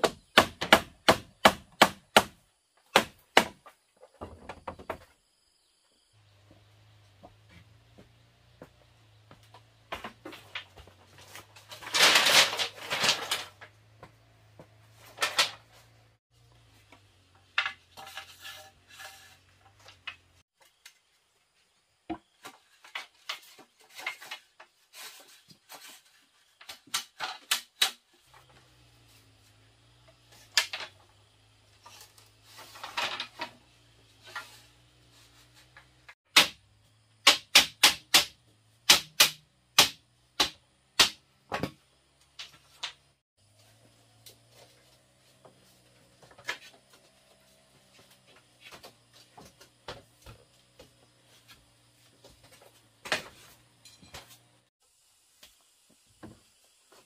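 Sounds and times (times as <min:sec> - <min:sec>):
hand tools knocking bamboo: 0:00.0 - 0:03.6, 0:36.3 - 0:36.6, 0:37.2 - 0:43.0.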